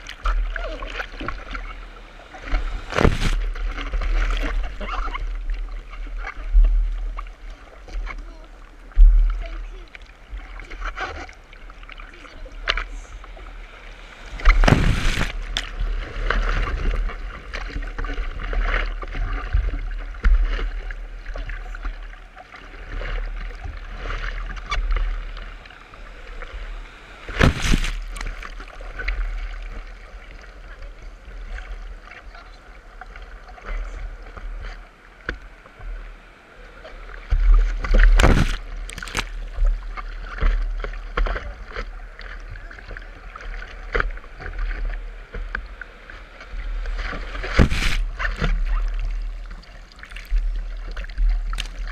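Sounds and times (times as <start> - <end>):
low rumble of moving water: 0.0 - 51.9
water splashing against a surfboard: 0.0 - 51.9
breaking whitewater rushing: 14.0 - 15.8
wind buffeting microphone: 14.2 - 15.8.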